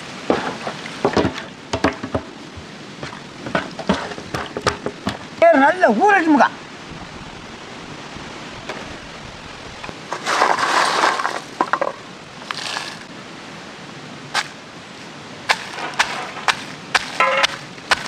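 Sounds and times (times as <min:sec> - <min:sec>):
wooden pestle pounding stone mortar: 0:15.5 - 0:18.0.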